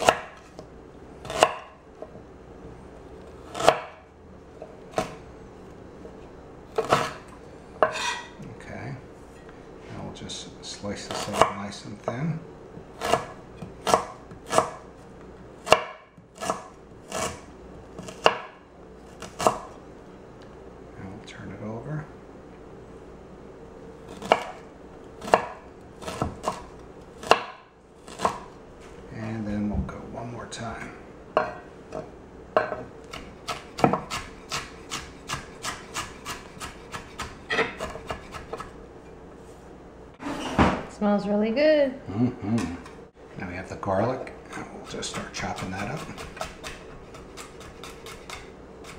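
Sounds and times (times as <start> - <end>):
knife chopping on wooden board: 0.0 - 2.1, 3.4 - 4.0, 6.7 - 8.3, 13.0 - 14.9, 15.6 - 17.4, 18.0 - 18.6, 19.2 - 19.8, 24.1 - 24.6, 25.2 - 28.5, 32.6 - 38.8, 44.8 - 48.9.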